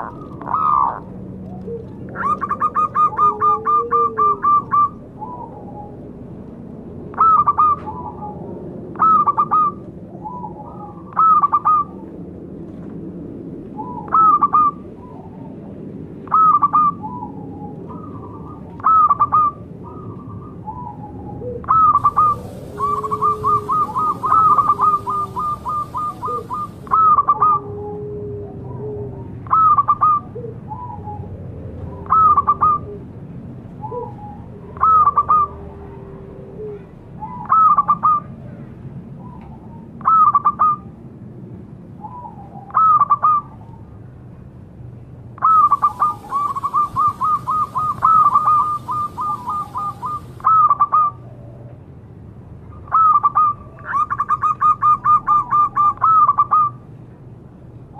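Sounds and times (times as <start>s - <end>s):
low drawn-out cooing: 0.0s - 6.0s, 20.7s - 31.3s, 33.8s - 38.4s, 45.4s - 51.8s
dove cooing call: 0.0s - 6.4s, 7.1s - 12.2s, 13.8s - 33.2s, 33.8s - 38.5s, 39.2s - 41.0s, 42.0s - 44.0s, 45.4s - 51.8s, 52.8s - 56.8s.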